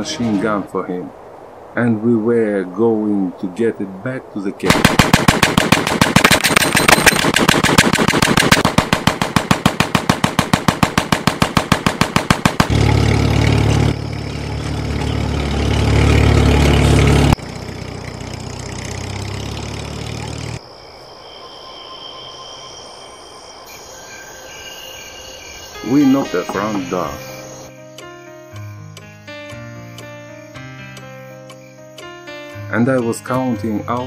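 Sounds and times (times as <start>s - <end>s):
machine gun firing: 4.7s - 12.8s
old car engine running: 12.5s - 20.6s
crickets chirping: 13.0s - 15.6s, 17.4s - 34.0s.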